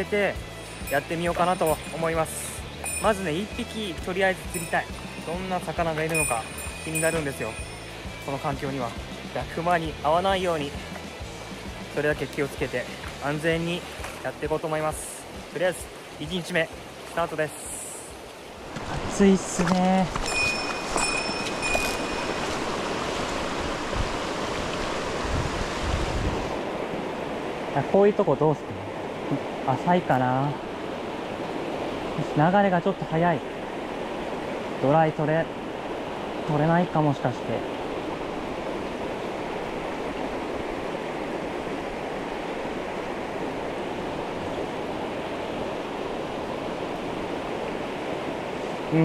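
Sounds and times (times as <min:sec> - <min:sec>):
thin high steady tone: 0:00.6 - 0:05.4, 0:06.1 - 0:08.4, 0:20.2 - 0:22.7
river water rushing over rock: 0:18.0 - 0:49.0.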